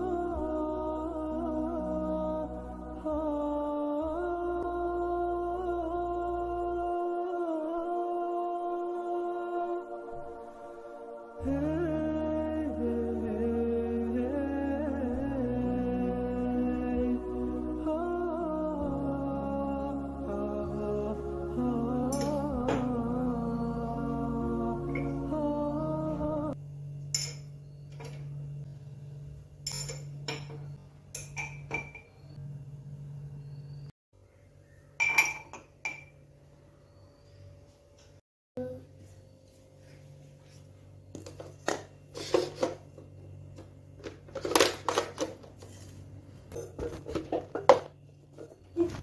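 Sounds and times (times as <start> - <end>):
steady low hum: 0.0 - 49.0
ceramic mugs clinking on metal hooks: 22.1 - 22.9, 27.1 - 28.3, 29.6 - 32.3, 35.0 - 36.2
kitchen items knocking on tiles: 41.2 - 45.6, 46.5 - 48.8.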